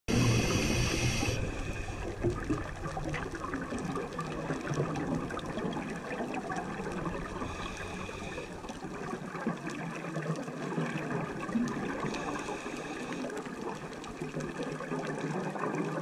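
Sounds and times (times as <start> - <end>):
high hiss: 0.1 - 2.0
muffled underwater gurgling: 0.1 - 16.0.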